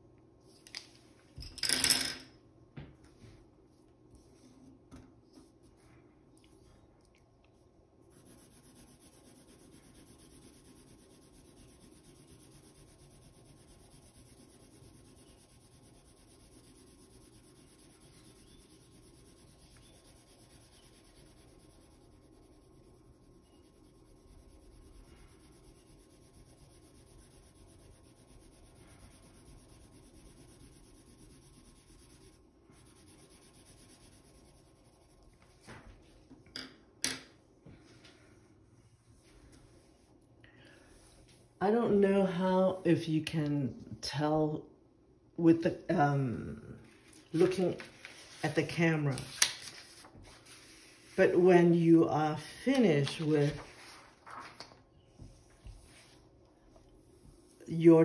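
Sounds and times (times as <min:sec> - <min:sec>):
pencil shading on paper: 0:08.1 - 0:35.2.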